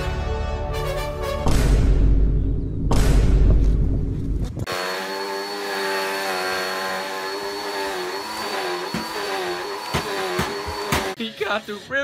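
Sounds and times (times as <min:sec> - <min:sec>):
vacuum cleaner running: 0:04.7 - 0:11.2.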